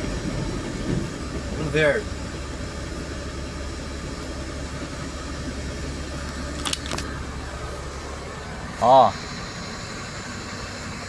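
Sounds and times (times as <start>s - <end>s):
vehicle engine and road drone: 0.0s - 11.0s
sharp clicks: 6.5s - 7.1s.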